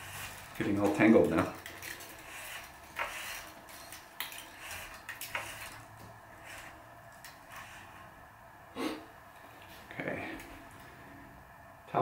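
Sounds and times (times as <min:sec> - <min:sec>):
racquet string rubbing: 0:00.0 - 0:08.2.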